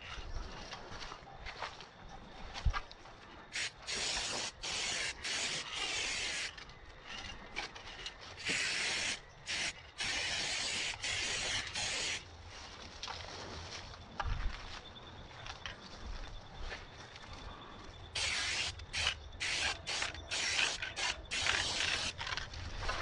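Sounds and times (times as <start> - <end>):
spray paint can hissing: 3.6 - 6.5, 8.4 - 12.2, 18.2 - 22.2.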